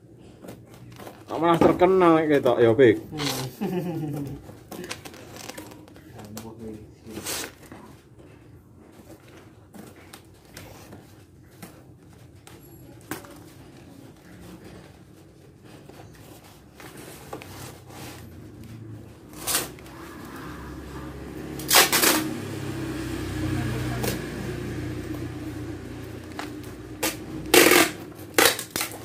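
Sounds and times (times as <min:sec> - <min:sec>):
cardboard rustling and crinkling: 0:00.2 - 0:20.9
sharp cardboard scrapes: 0:27.0 - 0:29.0.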